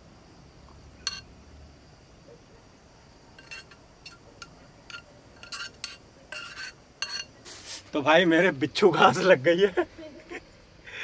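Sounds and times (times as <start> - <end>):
utensil clinking on metal pot: 1.0 - 1.3, 3.4 - 7.4.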